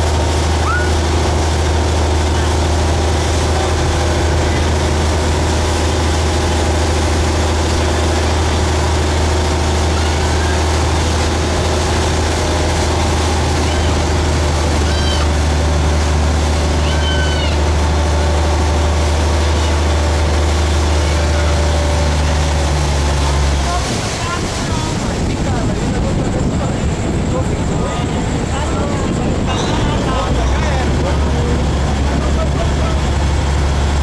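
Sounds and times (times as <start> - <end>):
boat engine drone: 0.0 - 34.0
rush of wake and wind: 0.0 - 34.0
brief high calls: 0.6 - 1.0.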